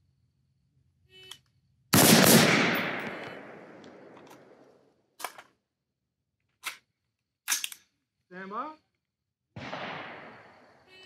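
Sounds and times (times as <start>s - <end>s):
rifle gunshots echoing: 1.9s - 4.7s, 9.6s - 10.7s.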